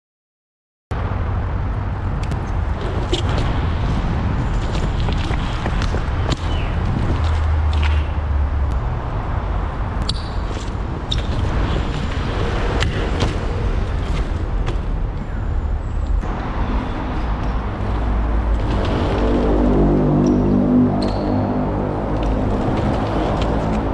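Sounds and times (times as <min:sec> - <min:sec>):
steady low rumble: 0:01.0 - 0:10.0, 0:10.7 - 0:23.9
bike tyres clicking on concrete: 0:02.1 - 0:08.8, 0:10.0 - 0:15.3, 0:22.1 - 0:23.9.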